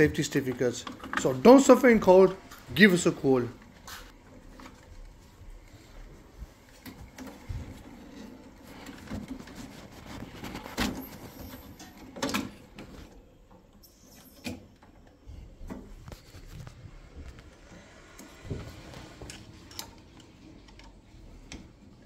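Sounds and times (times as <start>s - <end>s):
clicks and knocks of handling: 0.0s - 1.7s.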